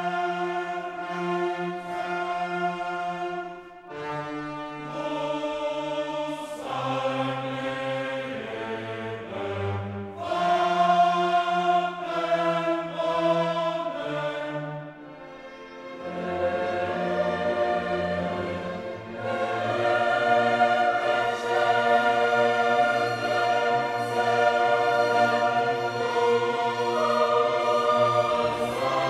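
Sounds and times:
choral and orchestral music: 0.0 - 29.0.

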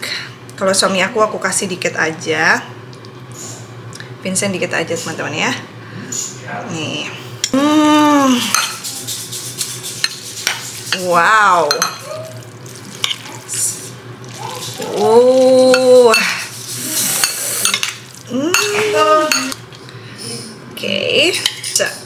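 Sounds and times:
cutlery scraping ceramic bowls: 8.5 - 12.1, 14.6 - 19.6.

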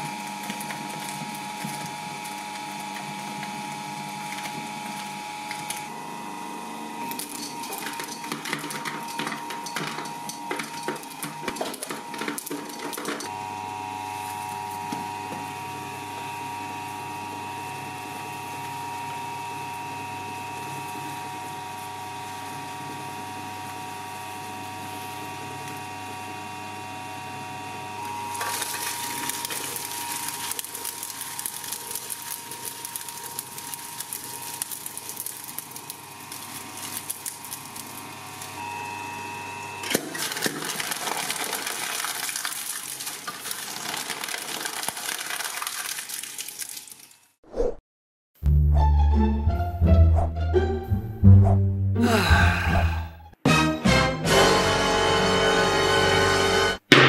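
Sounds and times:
shredder cutters crunching: 0.0 - 15.8, 28.0 - 38.6, 39.7 - 47.2
shredder tearing with dense crackling: 0.0 - 15.8, 28.0 - 38.6, 39.7 - 47.2
shredder motor humming: 0.0 - 45.7.

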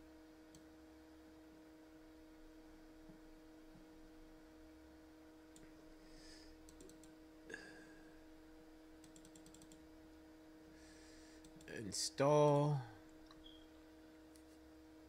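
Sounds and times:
low electrical hum: 0.0 - 15.0
computer mouse clicks: 6.6 - 7.2, 9.0 - 9.8, 11.4 - 11.8.

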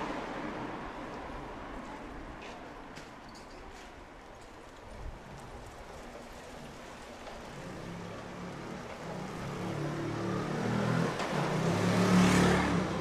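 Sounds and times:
scooter engine passing: 5.7 - 13.0.

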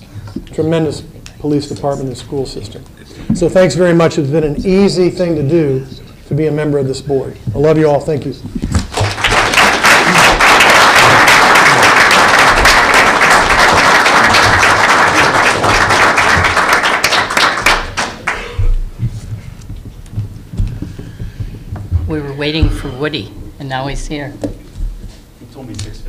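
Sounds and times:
audience applauding: 8.8 - 18.6.

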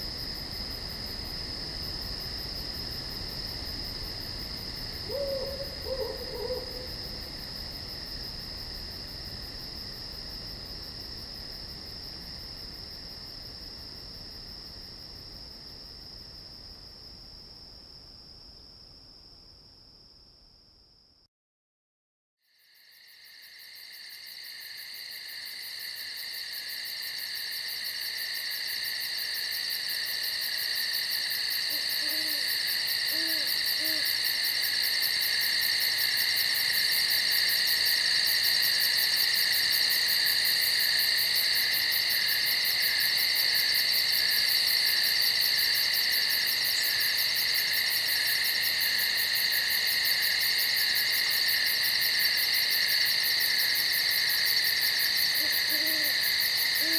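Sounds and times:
night insects trilling: 0.0 - 18.3, 22.4 - 56.9
owl hooting: 5.0 - 7.0, 31.7 - 34.2, 55.4 - 56.2.

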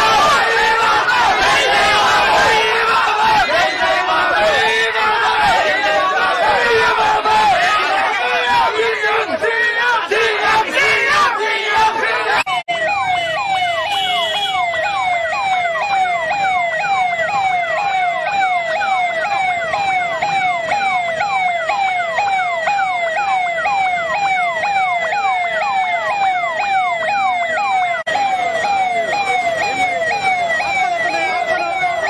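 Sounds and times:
electronic siren yelping: 12.0 - 32.0
second siren sweeping: 12.3 - 32.0.

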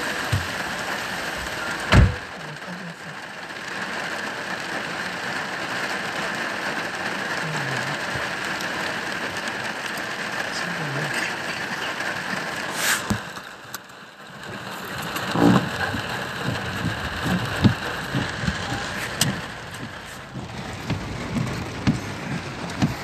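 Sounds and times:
heavy rain drumming on car roof: 0.0 - 23.0.

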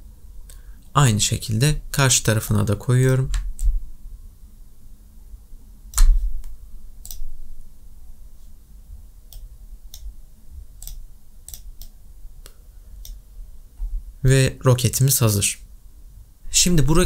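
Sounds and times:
faint low room rumble: 0.0 - 17.0
computer mouse clicks: 5.9 - 7.3, 10.8 - 12.0.

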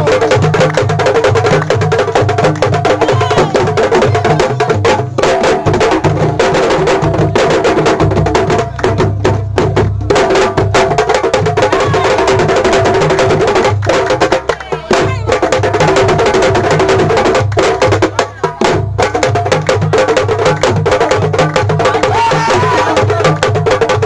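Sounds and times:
fast dense drumming: 0.0 - 24.0.

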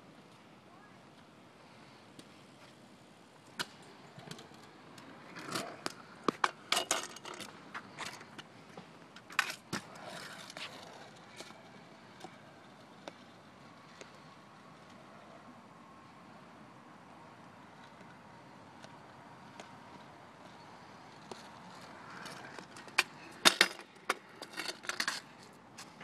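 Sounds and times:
kick scooter clattering on concrete: 3.6 - 11.6, 21.2 - 26.0.

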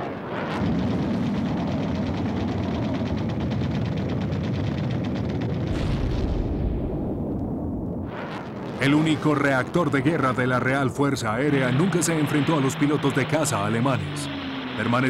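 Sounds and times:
deep rumble: 0.0 - 15.0
machine-gun fire: 0.3 - 7.0, 11.3 - 15.0.

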